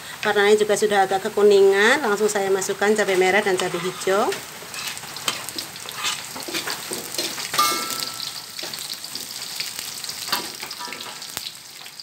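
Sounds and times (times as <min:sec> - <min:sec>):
vegetables sizzling in hot oil: 0:00.0 - 0:12.0
metallic wok ring: 0:02.6 - 0:12.0
spatula scraping a wok: 0:03.0 - 0:07.6.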